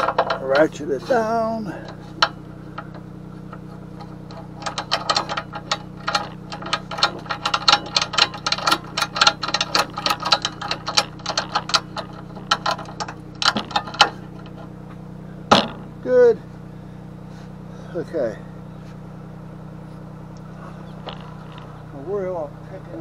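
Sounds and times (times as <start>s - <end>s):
steady low hum: 0.0s - 23.0s
ratchet strap clicking: 4.0s - 14.7s.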